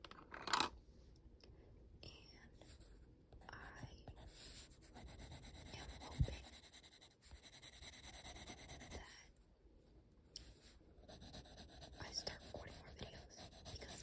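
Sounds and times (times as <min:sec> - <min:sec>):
pencil scratching on paper: 0:04.1 - 0:09.2, 0:10.4 - 0:14.0.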